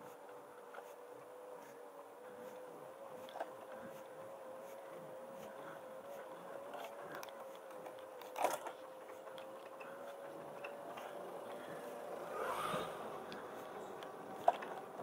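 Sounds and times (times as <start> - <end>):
electric motor humming: 0.0 - 15.0.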